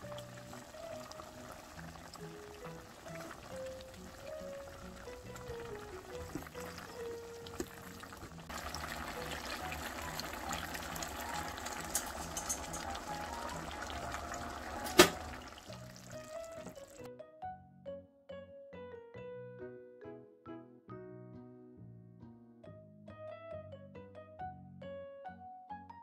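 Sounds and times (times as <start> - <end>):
pot simmering with bubbling hiss: 0.0 - 17.1
light background music: 0.0 - 26.0.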